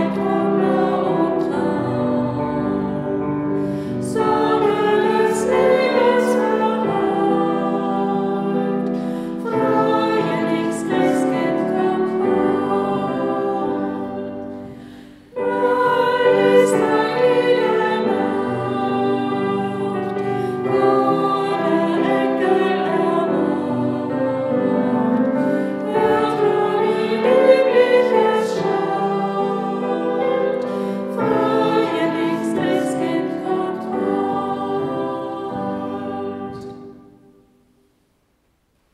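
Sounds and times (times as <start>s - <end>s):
choir singing sustained notes: 0.0s - 37.7s.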